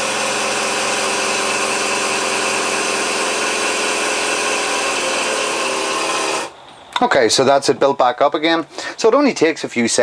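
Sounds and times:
compressor running: 0.0 - 6.6.

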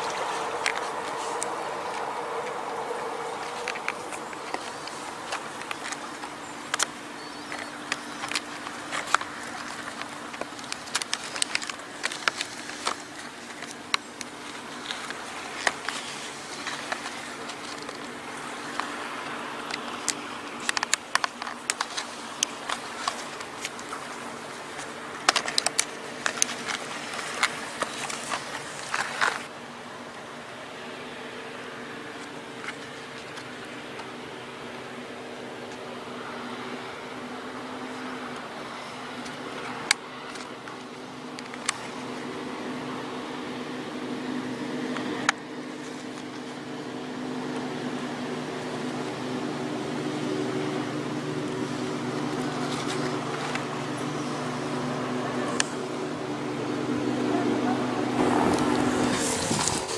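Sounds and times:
tool scratching bark: 0.0 - 29.5, 51.4 - 59.9.

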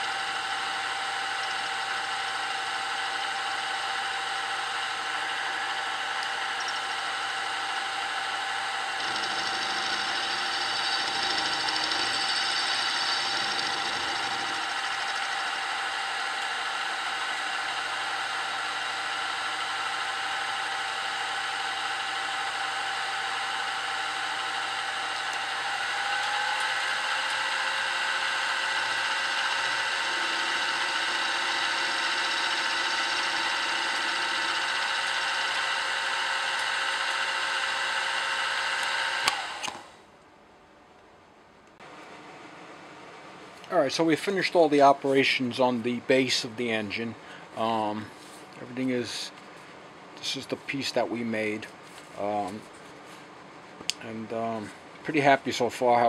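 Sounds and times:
end mill cutting metal: 0.0 - 39.8
milling machine whine: 0.0 - 39.8.

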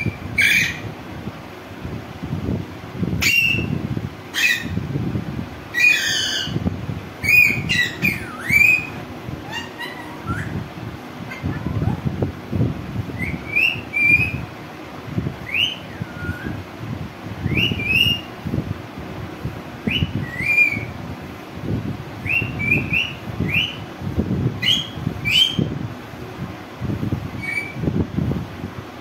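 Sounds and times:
parakeet chirping: 0.0 - 0.8, 3.2 - 3.7, 4.3 - 4.8, 5.7 - 6.6, 7.2 - 10.6, 11.3 - 12.0, 13.2 - 14.4, 15.4 - 16.6, 17.6 - 18.3, 19.9 - 20.9, 22.2 - 23.8, 24.6 - 25.7, 27.4 - 27.8
low uneven rumble: 6.5 - 17.4.

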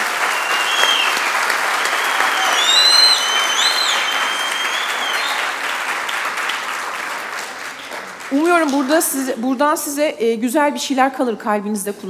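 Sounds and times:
high whistles: 0.0 - 5.6
audience applauding: 0.0 - 9.3.

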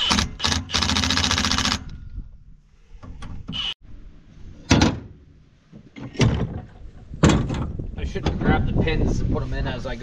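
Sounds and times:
fast mechanical rattle: 0.1 - 1.9.

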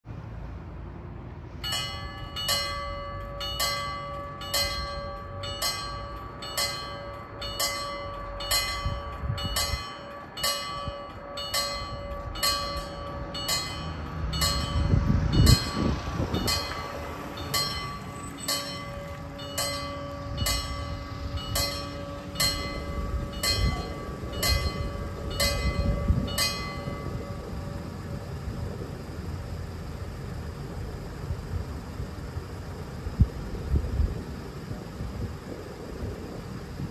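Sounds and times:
level-crossing warning bell: 1.5 - 33.5.

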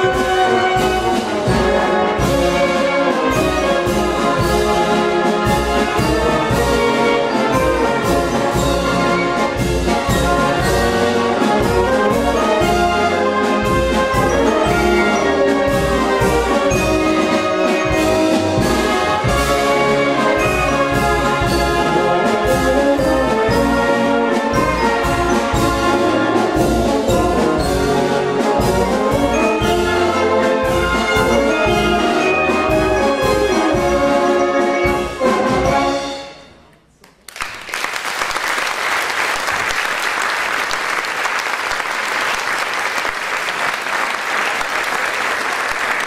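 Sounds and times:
steady drum beat: 0.0 - 36.0
concert wind band playing: 0.0 - 36.6
audience applause: 37.0 - 46.0.

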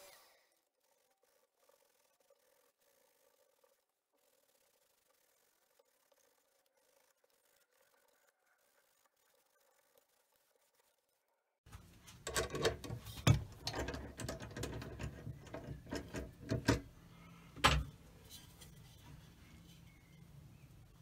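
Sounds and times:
lathe mechanism clicks and knocks: 12.2 - 16.9.

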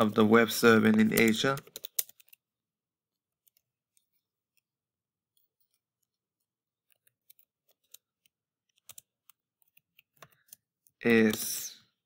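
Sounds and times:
computer keyboard typing: 0.8 - 2.4, 6.8 - 11.5.

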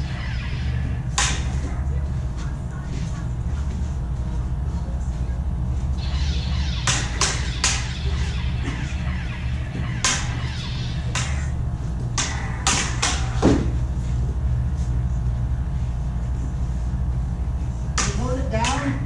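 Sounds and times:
lightsaber blades clashing: 0.0 - 2.2, 6.0 - 13.8
lightsabers humming: 0.0 - 16.4.

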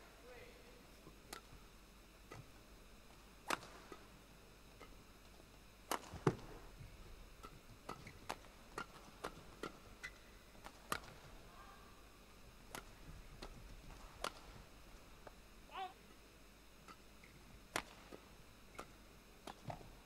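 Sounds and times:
racket striking shuttlecock: 3.5 - 4.0, 5.9 - 6.4, 7.4 - 11.2, 12.7 - 14.5, 17.7 - 19.8.

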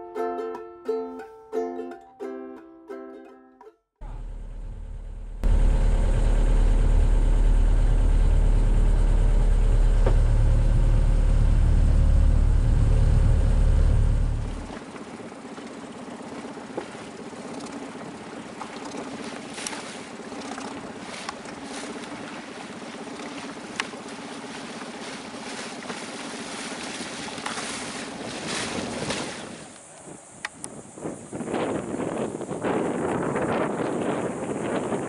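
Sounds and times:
faint motor hum: 4.0 - 29.5
wind: 4.0 - 35.0
choppy water: 5.4 - 35.0.

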